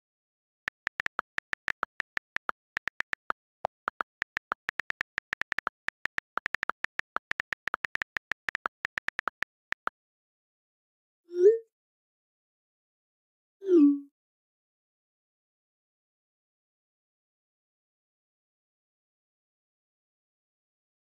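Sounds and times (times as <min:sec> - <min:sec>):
phone keyboard key clicks: 0:00.7 - 0:09.9.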